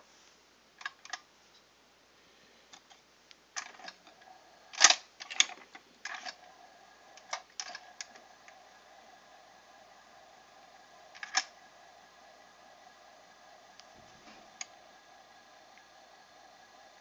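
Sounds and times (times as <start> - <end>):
faint steady hum: 0.0 - 17.0
turntable mechanism clicks: 3.6 - 6.5, 7.2 - 8.6, 11.2 - 11.6.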